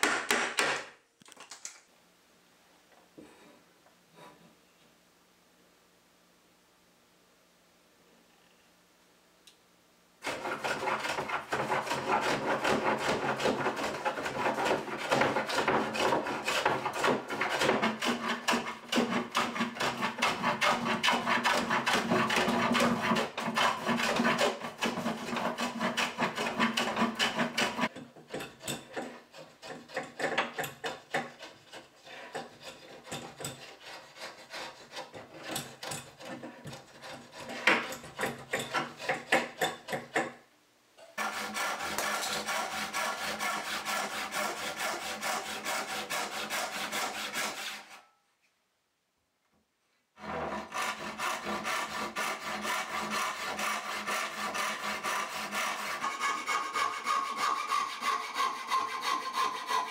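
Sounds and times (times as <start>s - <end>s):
hand plane shaving wood: 10.2s - 27.9s, 28.8s - 40.1s, 41.2s - 48.0s, 50.2s - 59.9s.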